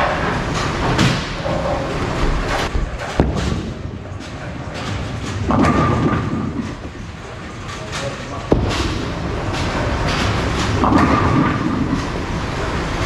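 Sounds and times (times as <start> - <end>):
bowling ball thudding and rolling: 0.0 - 7.4, 8.5 - 12.4
bowling alley clatter: 0.0 - 13.0
ball crashing into pins: 2.7 - 6.8, 8.5 - 12.0.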